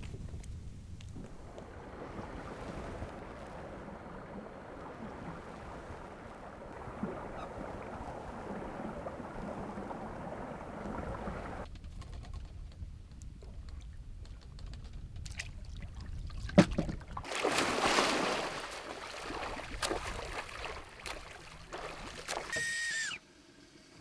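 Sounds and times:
lake water rippling and lapping: 0:00.0 - 0:11.7, 0:13.2 - 0:23.2.

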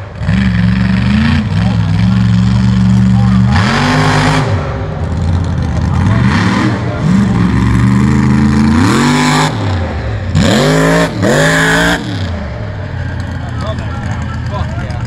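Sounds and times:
truck engine revving hard: 0:00.0 - 0:15.0.

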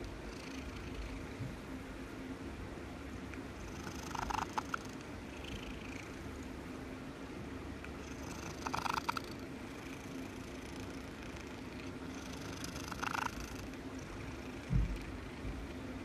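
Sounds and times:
cat purring: 0:00.0 - 0:01.5, 0:03.6 - 0:06.6, 0:07.9 - 0:16.0.

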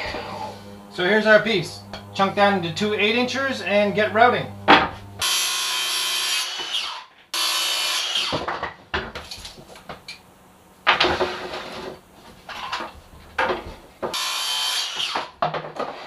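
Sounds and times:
circular saw cutting wood: 0:00.0 - 0:08.5, 0:14.0 - 0:15.4
wood and tools clattering: 0:08.1 - 0:10.2, 0:10.9 - 0:16.0.

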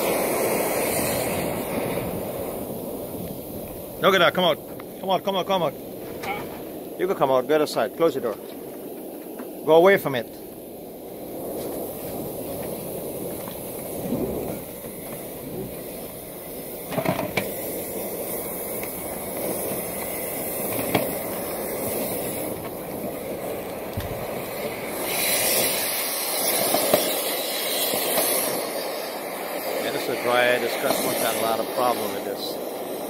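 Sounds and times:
hiss of lint blown out: 0:00.0 - 0:02.5, 0:24.9 - 0:32.3.

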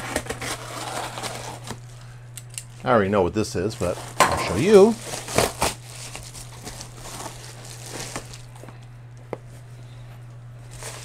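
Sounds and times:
paper mailer rustling: 0:00.0 - 0:01.9, 0:02.9 - 0:08.6, 0:10.6 - 0:11.0
steady low hum: 0:00.0 - 0:11.0.

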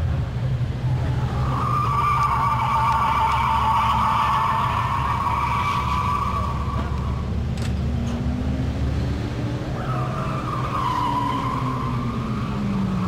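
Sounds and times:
tires squealing: 0:00.7 - 0:13.0
car engine revving: 0:00.8 - 0:13.0.

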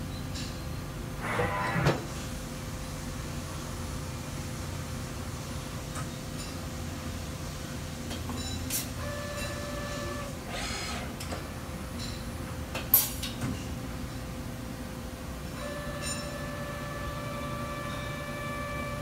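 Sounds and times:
machine hum: 0:13.9 - 0:19.0
machine whine: 0:15.6 - 0:19.0.

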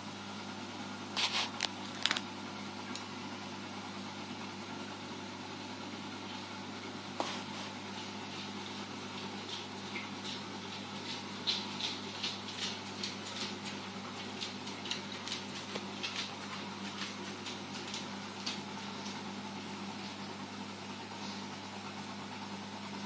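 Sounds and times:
aquarium equipment hum: 0:00.0 - 0:23.0
light irregular ticks: 0:09.2 - 0:19.2.

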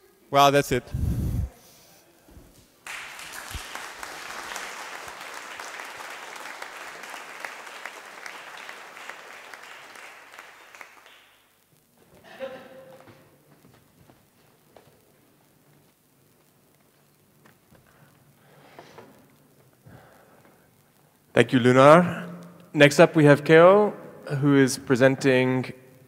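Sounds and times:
audience applauding: 0:02.8 - 0:11.6.

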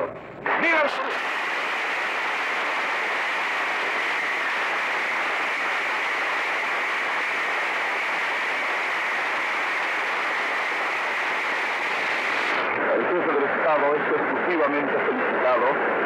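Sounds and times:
audience applauding: 0:01.2 - 0:11.5.

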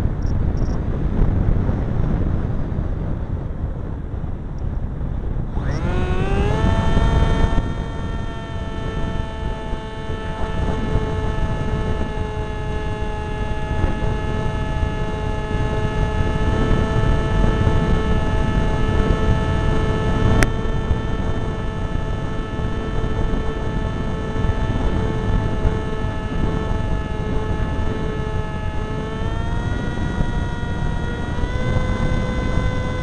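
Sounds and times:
wind on microphone: 0:00.0 - 0:33.0
model plane motor droning: 0:04.6 - 0:33.0.

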